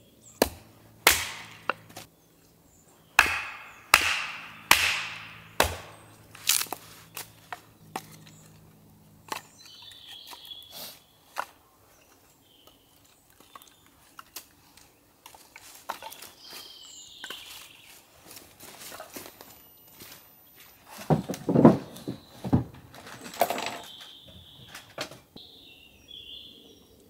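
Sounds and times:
bird chirping: 1.5s - 15.0s, 16.0s - 18.0s, 21.9s - 27.0s
footsteps through wet leaves: 6.0s - 7.5s.

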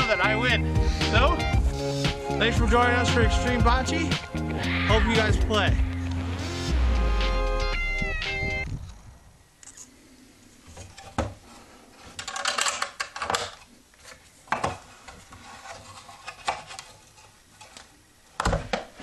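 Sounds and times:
balls rattling in box: 12.2s - 13.6s.

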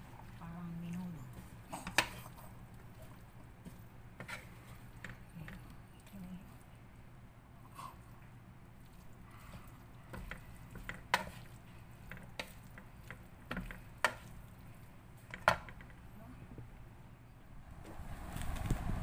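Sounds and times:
utensil scraping cooking pot: 1.2s - 5.7s, 9.4s - 14.4s.

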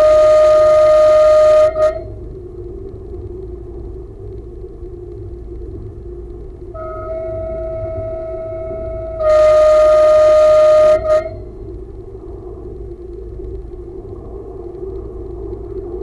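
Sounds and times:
train horn blast: 0.0s - 2.2s, 6.8s - 11.7s
train rumbling: 0.0s - 16.0s.

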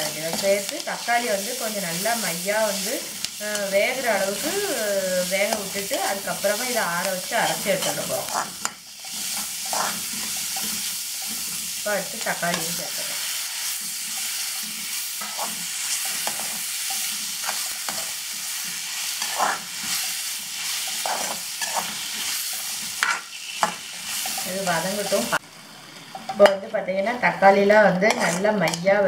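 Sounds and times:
spatula stirring and scraping: 0.0s - 4.5s, 5.2s - 25.4s, 27.7s - 28.8s
food sizzling in a pan: 0.0s - 29.0s.

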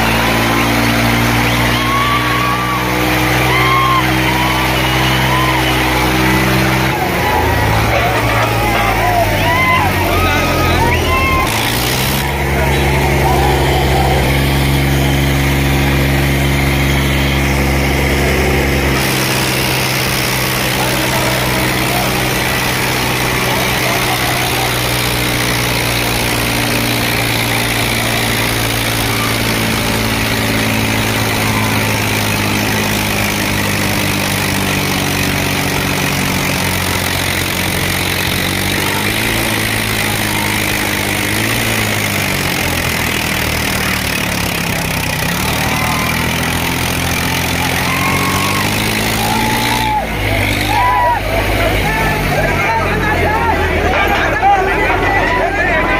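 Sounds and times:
tractor engines under load: 0.0s - 55.9s.

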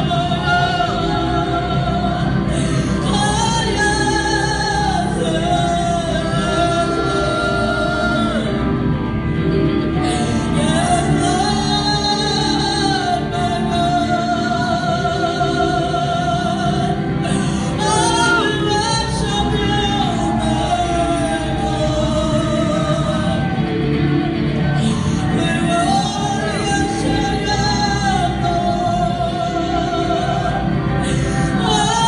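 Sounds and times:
electric guitar: 0.0s - 32.0s
woman singing into a microphone: 0.0s - 32.0s.

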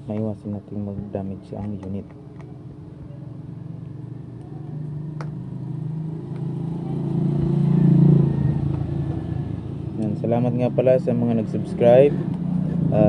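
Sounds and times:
vehicle engine passing by: 4.7s - 13.0s.

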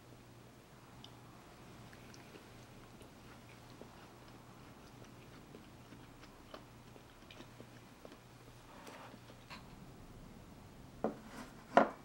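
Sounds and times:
low steady hum: 0.0s - 12.0s
person chewing: 1.8s - 9.5s.

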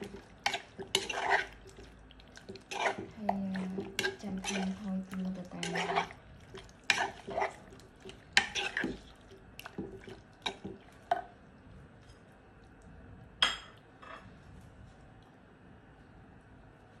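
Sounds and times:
spoon clinking and scraping bowl: 0.0s - 1.6s, 2.5s - 4.8s, 5.6s - 6.2s, 6.9s - 9.1s
soft squelching: 0.0s - 13.1s.

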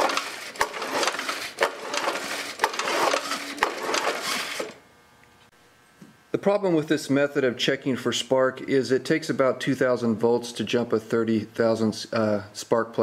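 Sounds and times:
recoil starter whirring: 0.0s - 5.5s.

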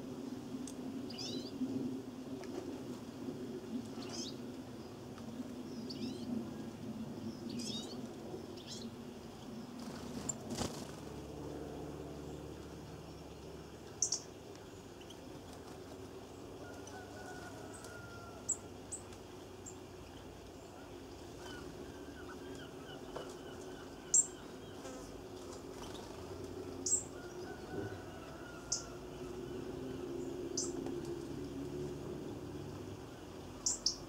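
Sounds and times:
steady low hum: 0.0s - 34.0s
faint bird twittering: 1.1s - 1.6s, 5.7s - 6.6s, 13.8s - 14.3s, 17.7s - 25.2s, 33.1s - 34.0s
songbird chirps: 11.9s - 34.0s.

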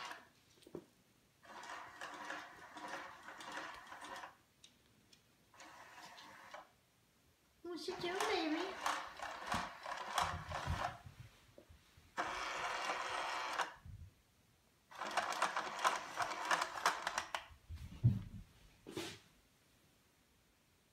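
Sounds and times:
small motor whirring and rattling: 1.4s - 4.4s, 5.6s - 6.7s, 8.0s - 11.0s, 12.2s - 13.8s, 14.9s - 17.4s.

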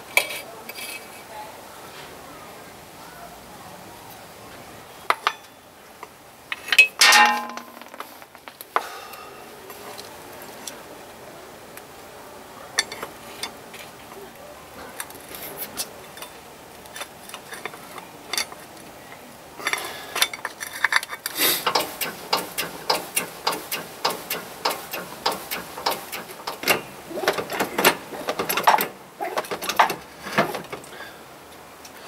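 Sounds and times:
motorcycle chain clicking: 19.6s - 30.7s.

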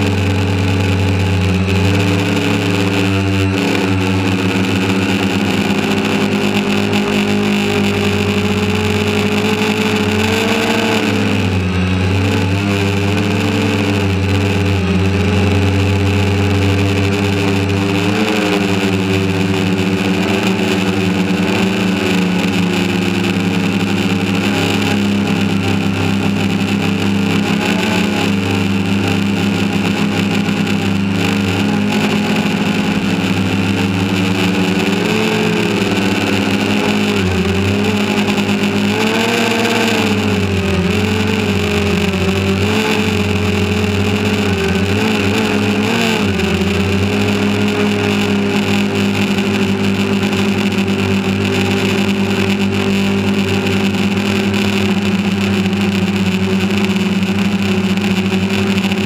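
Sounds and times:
drone motors humming: 0.0s - 59.0s.

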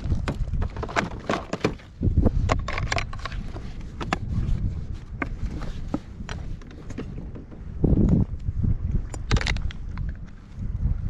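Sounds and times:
gear clicking in plastic kayak: 0.0s - 11.0s
wind rumble on microphone: 0.0s - 11.0s.

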